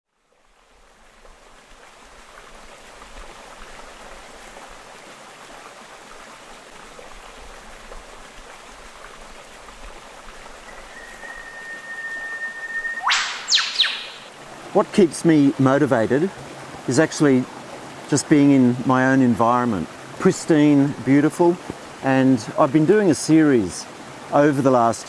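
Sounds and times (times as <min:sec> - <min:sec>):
water running over rocks: 0:00.1 - 0:13.6, 0:14.2 - 0:25.0
steady high tone: 0:10.7 - 0:14.3.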